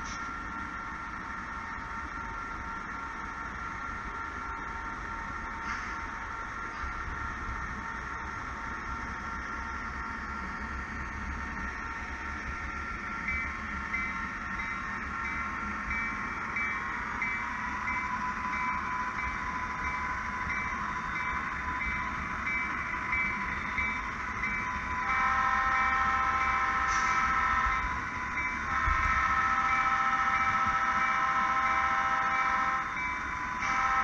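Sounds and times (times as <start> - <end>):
locomotive engine drone: 0.0 - 34.0
locomotive horn: 25.0 - 27.9, 28.7 - 33.0, 33.6 - 34.0.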